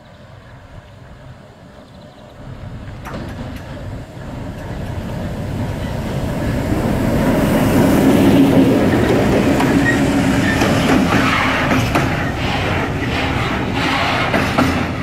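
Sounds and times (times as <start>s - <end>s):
diesel locomotive engine drone: 0.0s - 15.0s
wheels clicking over rails: 2.5s - 7.4s, 8.0s - 15.0s.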